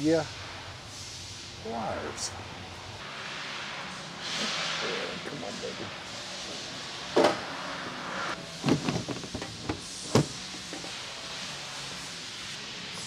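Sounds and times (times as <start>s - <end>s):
knocks and rattles: 8.6s - 10.9s
trunk clunking onto rack: 8.6s - 10.9s.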